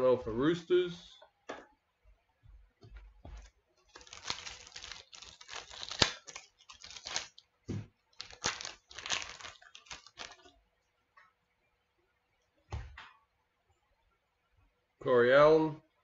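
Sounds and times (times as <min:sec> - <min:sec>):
foil wrapper tearing and crinkling: 0:03.9 - 0:07.4, 0:08.1 - 0:10.5.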